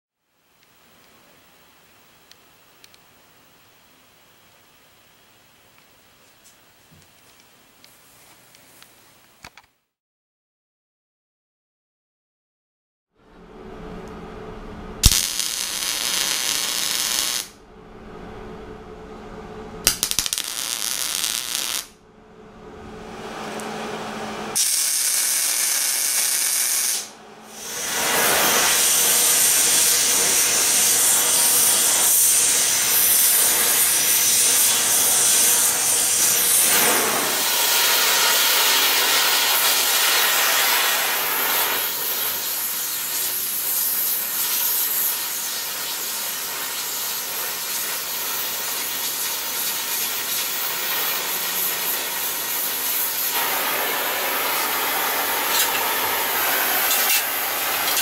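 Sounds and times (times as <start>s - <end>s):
welding arc hissing: 15.0s - 17.6s, 19.9s - 22.0s, 24.6s - 58.0s.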